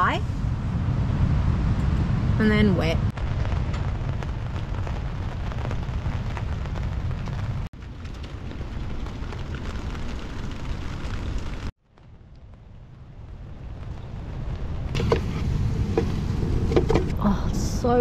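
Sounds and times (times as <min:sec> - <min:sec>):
wind buffeting the microphone: 0:12.3 - 0:18.0.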